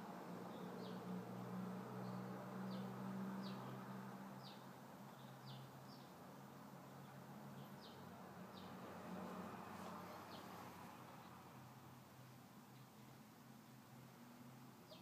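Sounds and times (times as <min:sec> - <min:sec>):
small bird chirping: 0:04.4 - 0:06.1.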